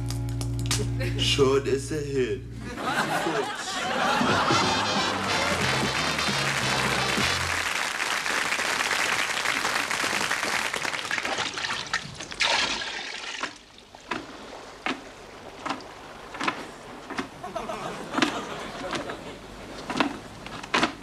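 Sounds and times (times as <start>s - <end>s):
water slopping out of bucket: 11.1s - 17.4s.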